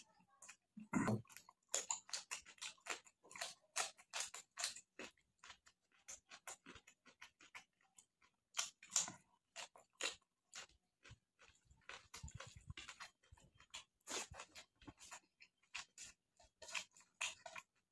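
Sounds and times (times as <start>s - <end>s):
person chewing food: 0.0s - 17.9s.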